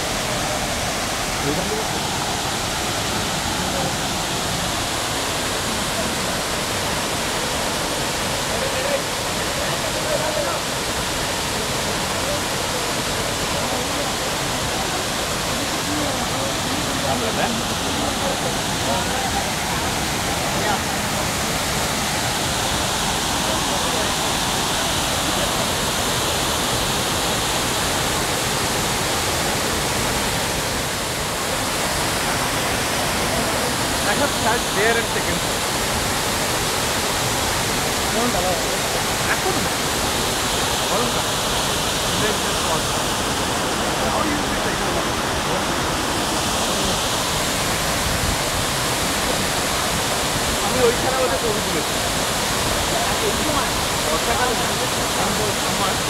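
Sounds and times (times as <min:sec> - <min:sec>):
waterfall rushing: 0:00.0 - 0:56.0.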